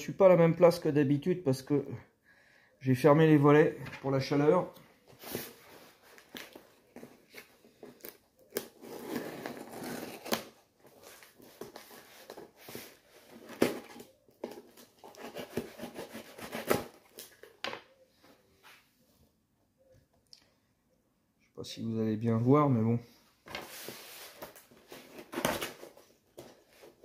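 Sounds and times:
cardboard scraping and crinkling: 8.6s - 17.0s
knife slitting packing tape: 15.0s - 17.0s.

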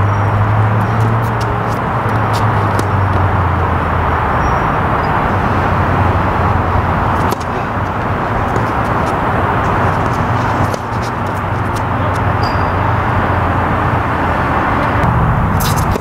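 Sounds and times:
steady rushing outdoor noise: 0.0s - 16.0s
tennis ball struck: 0.8s - 3.3s, 4.9s - 12.8s, 15.6s - 16.0s.

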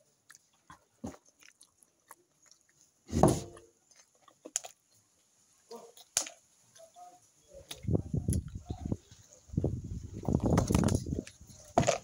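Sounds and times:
wet mouth smacks chewing: 0.2s - 2.9s.

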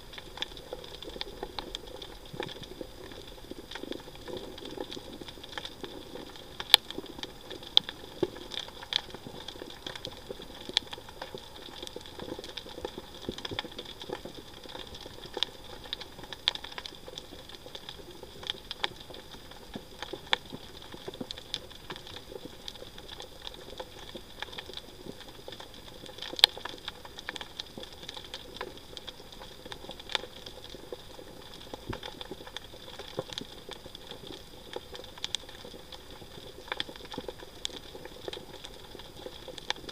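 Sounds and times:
steady hum and hiss: 0.0s - 39.9s
underwater clicks and crackles: 0.0s - 39.9s.

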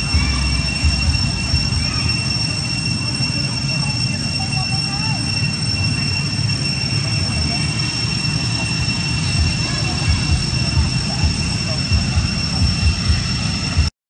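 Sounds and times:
low rumble: 0.0s - 2.3s, 8.8s - 13.9s
faint distant voices: 0.0s - 13.9s
high-pitched whine: 0.0s - 13.9s.

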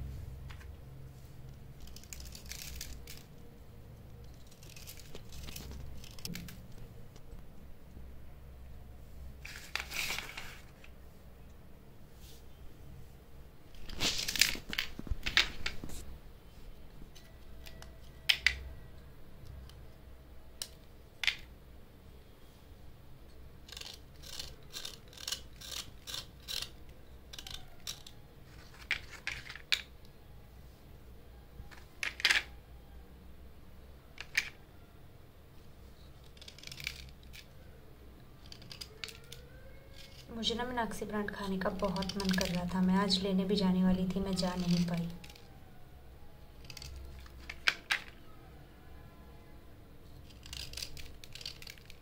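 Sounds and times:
knife scraping slate pencils: 23.7s - 29.6s, 36.3s - 37.5s, 38.4s - 40.3s, 46.6s - 47.8s, 50.2s - 52.0s.

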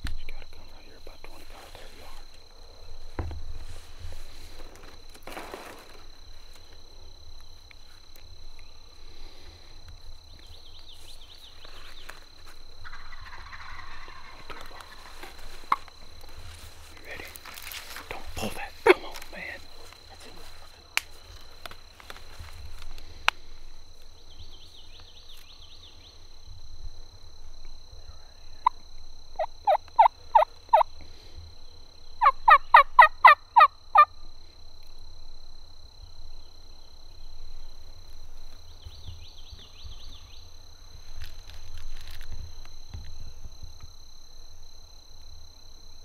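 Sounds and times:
turkey yelping: 12.8s - 15.2s, 29.4s - 30.8s, 32.2s - 34.1s.

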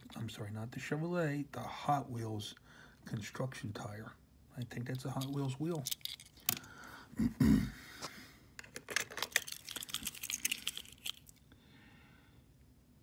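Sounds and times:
toy truck clicks and rattles: 5.0s - 6.7s, 8.6s - 11.4s.

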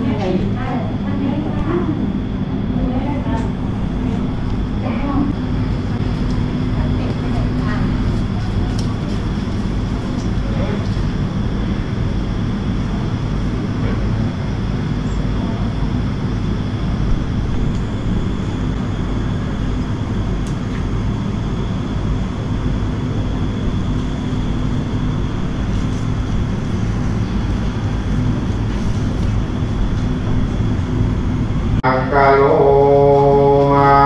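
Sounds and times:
low droning hum: 0.0s - 34.0s.

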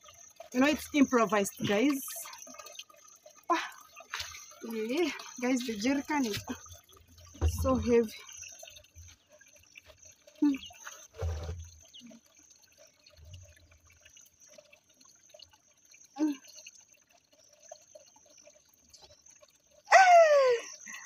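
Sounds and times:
water sloshing: 0.0s - 14.8s
woman straining vocally: 19.9s - 20.7s.

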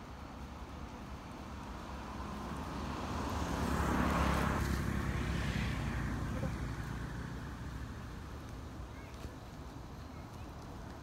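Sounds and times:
motor vehicle passing by: 1.4s - 11.0s.

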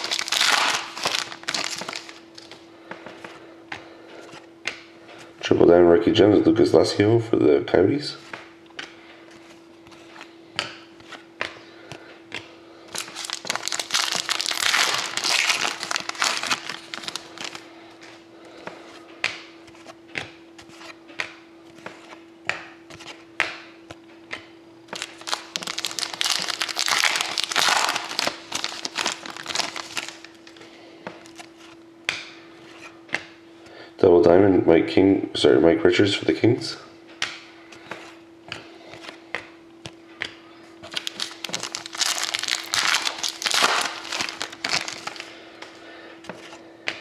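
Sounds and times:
cards rustling: 0.0s - 5.3s, 8.2s - 23.2s, 24.9s - 31.8s, 37.2s - 47.0s
faint steady hum: 0.0s - 47.0s.

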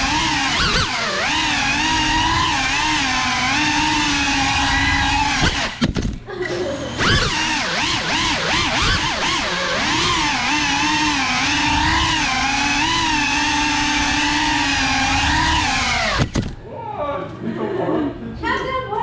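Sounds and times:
drone motors whining: 0.0s - 16.7s
sharp knock: 16.2s - 16.6s.

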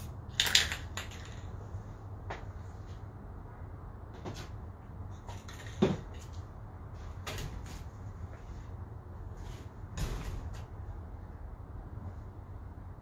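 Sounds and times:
steady low rumble: 0.0s - 13.0s
loud thump: 10.0s - 10.6s.

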